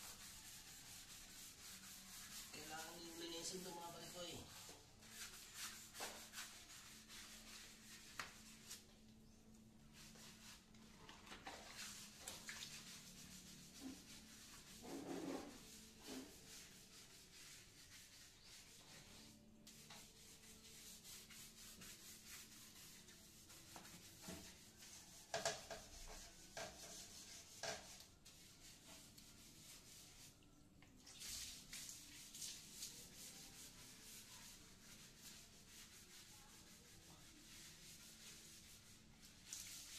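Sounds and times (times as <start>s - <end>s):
sponge scrubbing ceramic toilet: 0.0s - 8.9s, 9.9s - 30.4s, 31.0s - 39.9s
scrapes and knocks: 14.7s - 16.4s.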